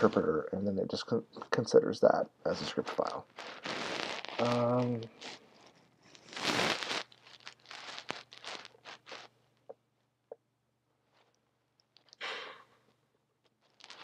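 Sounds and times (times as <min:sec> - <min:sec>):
rustling close to microphone: 0:02.7 - 0:09.3, 0:13.5 - 0:14.0.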